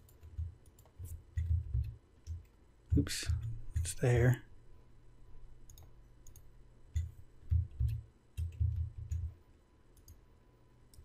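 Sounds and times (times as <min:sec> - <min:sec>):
computer mouse clicking: 0:00.0 - 0:04.0, 0:05.6 - 0:09.3, 0:09.9 - 0:10.2.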